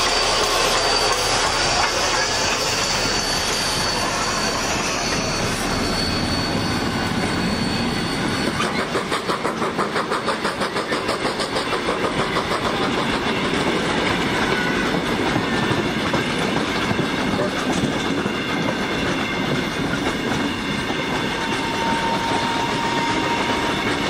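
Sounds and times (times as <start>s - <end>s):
train wheels rumbling on rails: 0.0s - 24.0s
wheels clicking over rail joints: 8.5s - 24.0s.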